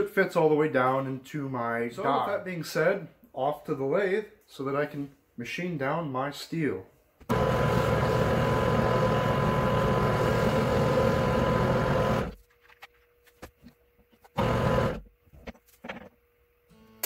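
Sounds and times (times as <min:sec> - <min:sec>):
metal lathe running: 0:07.3 - 0:12.4.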